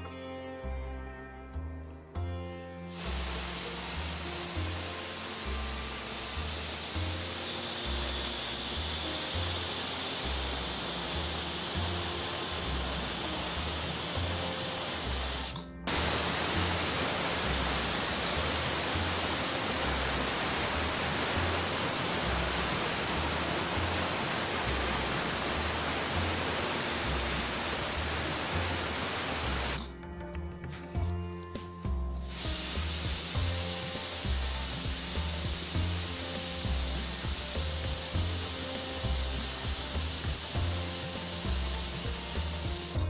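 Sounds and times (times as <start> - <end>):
background music with low beat: 0.0 - 43.0
pressure cooker steam hiss: 2.9 - 29.9, 32.2 - 43.0.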